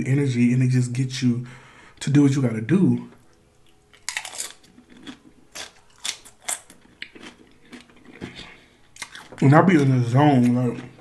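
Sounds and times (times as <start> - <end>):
chewing crisp tortilla chip: 3.6 - 11.0.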